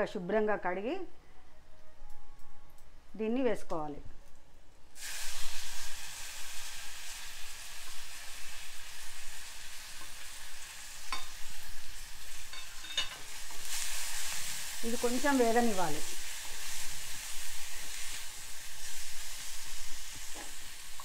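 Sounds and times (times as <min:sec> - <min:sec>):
leaves sizzling in hot oil: 0:04.9 - 0:21.0.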